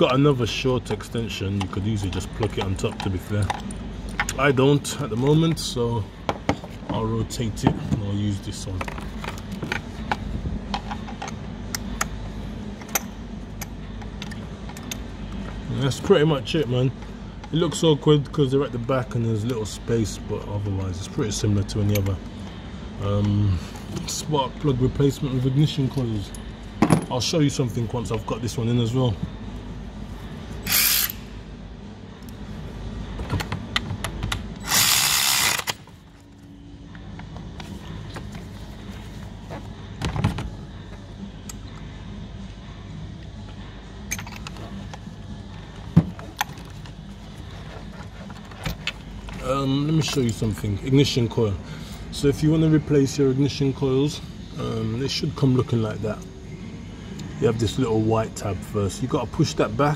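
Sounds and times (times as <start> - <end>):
steady low hum: 0.0 - 59.9
ratchet wrench clicking: 30.6 - 31.2, 34.6 - 35.8.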